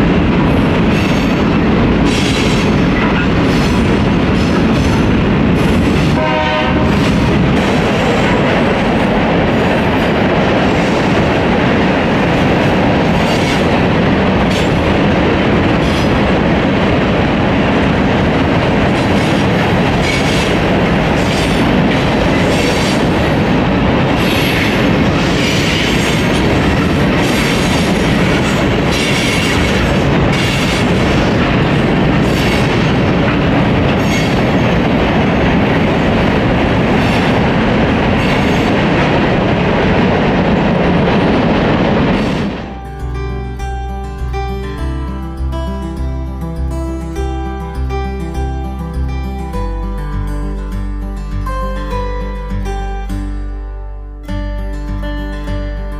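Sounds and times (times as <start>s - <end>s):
wheels clicking over rail joints: 0.0s - 42.8s
train wheels rumbling on rail: 0.0s - 44.8s.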